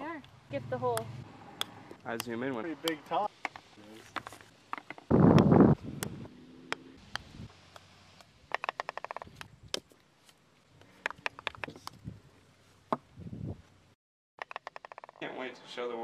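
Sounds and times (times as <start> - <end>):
putters striking golf balls: 0.2 - 10.0, 10.8 - 12.0.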